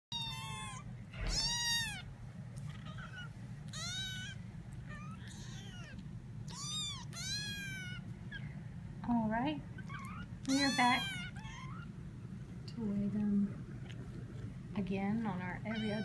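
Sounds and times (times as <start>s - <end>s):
kittens mewing: 0.1s - 8.6s, 9.7s - 12.2s, 15.6s - 16.0s.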